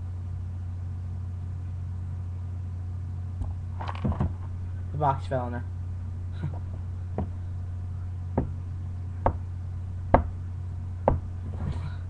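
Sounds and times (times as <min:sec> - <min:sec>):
low electrical hum: 0:00.0 - 0:12.0
sharp knocks: 0:08.4 - 0:08.6, 0:09.2 - 0:09.4, 0:10.1 - 0:10.4, 0:11.0 - 0:11.7.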